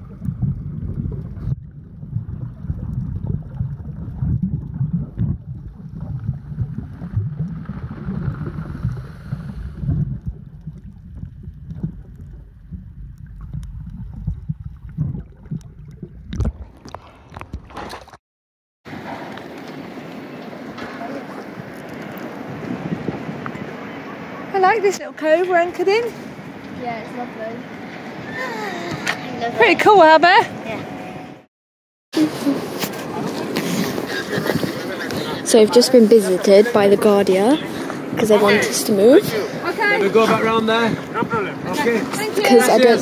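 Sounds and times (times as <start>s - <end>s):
underwater sloshing and gurgling: 0.0s - 18.2s
wind and water rushing: 18.9s - 31.5s, 32.2s - 43.0s.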